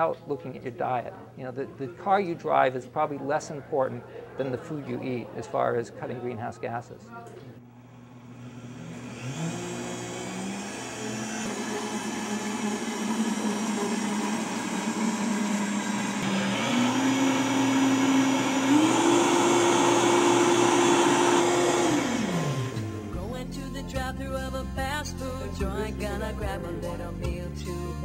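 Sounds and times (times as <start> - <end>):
blender motor whine: 7.8 - 23.2
liquid churning in blender: 7.9 - 23.0.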